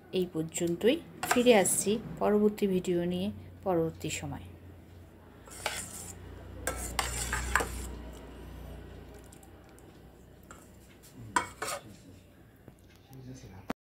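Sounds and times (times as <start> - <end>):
ladle scraping steel bowl: 5.4 - 8.3, 10.4 - 10.8, 11.4 - 12.0.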